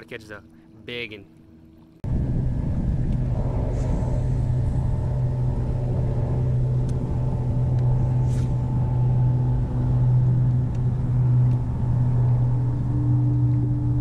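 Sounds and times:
electric trolling motor humming: 1.4 - 14.0
brief swish: 8.2 - 8.6.

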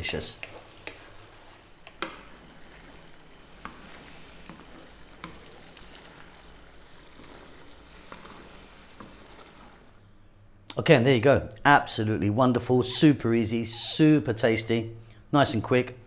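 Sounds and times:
spatula scraping pasta in pan: 0.0 - 10.6
sauce sizzling: 0.0 - 10.7.

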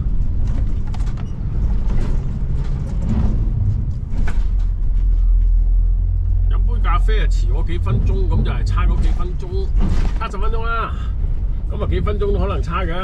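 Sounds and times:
creaks and clicks: 0.0 - 6.4
low vehicle rumble: 0.0 - 13.0.

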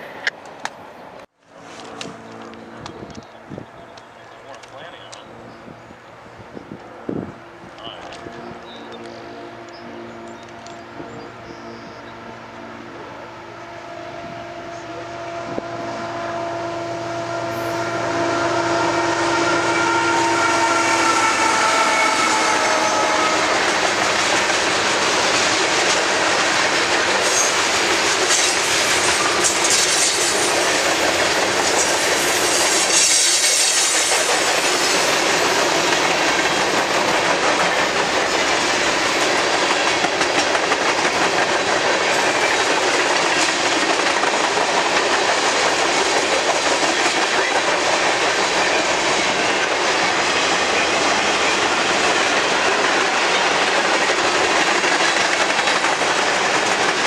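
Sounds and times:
freight train rolling past: 0.0 - 57.0
steel wheels clattering on rails: 23.1 - 57.0.

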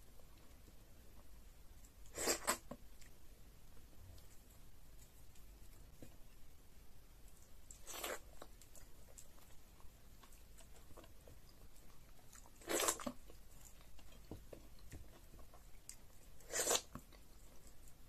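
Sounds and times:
soft chewing: 0.0 - 18.0
loud slurping: 2.1 - 2.6, 16.4 - 16.9.

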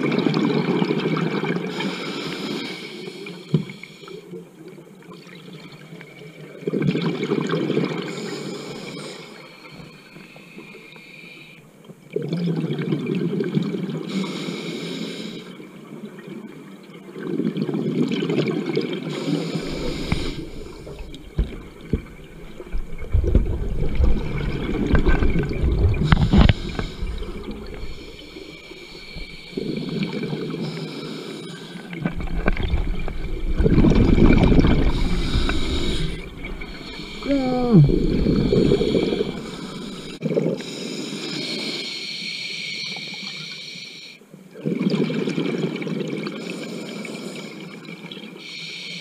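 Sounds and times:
exhaled bubbles rushing: 17.2 - 30.7, 31.9 - 40.6
regulator inhalation hissing: 19.1 - 22.7, 26.0 - 32.0, 34.7 - 44.2, 48.4 - 49.0.

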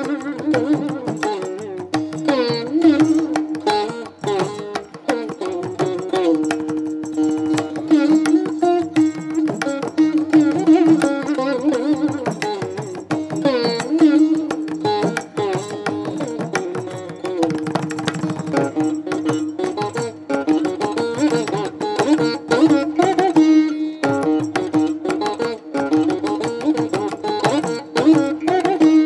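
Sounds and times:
plucked string melody: 0.0 - 29.0.

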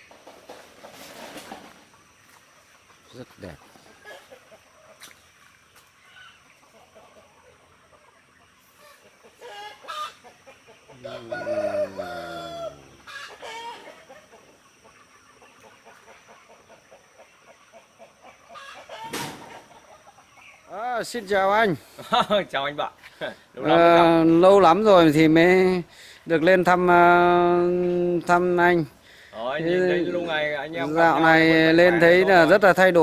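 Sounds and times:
chicken calls: 0.0 - 33.0
rooster crowing: 10.9 - 13.9.

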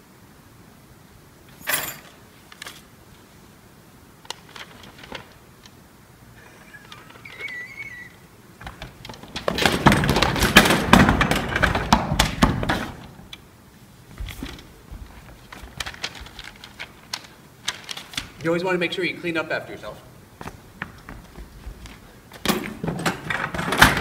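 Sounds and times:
short squeak: 6.6 - 8.2
metal chairs crashing onto stage: 9.4 - 13.0, 22.4 - 24.0.

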